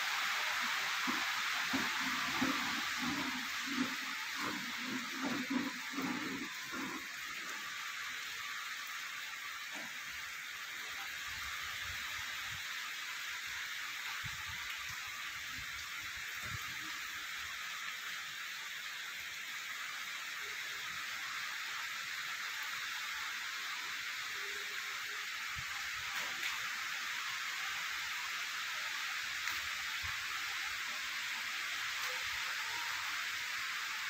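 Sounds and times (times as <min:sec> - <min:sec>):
heavy rain hissing: 0:00.0 - 0:34.0.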